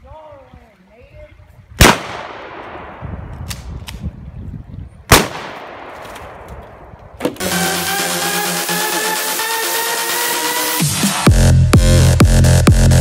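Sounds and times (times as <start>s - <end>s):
loud gunshots with echo: 1.8s - 3.3s, 5.1s - 6.5s.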